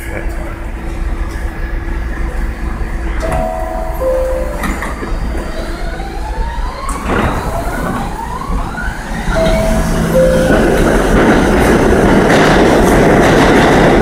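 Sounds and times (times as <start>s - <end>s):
low train rumble: 0.0s - 14.0s
two-note door chime: 3.2s - 5.2s, 9.4s - 11.2s
train doors knocking shut: 3.2s - 5.4s, 9.4s - 14.0s.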